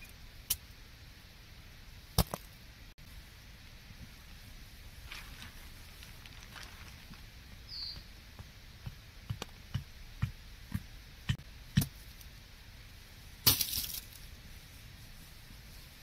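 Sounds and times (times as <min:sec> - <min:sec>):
rustling crunch: 0:04.8 - 0:09.8.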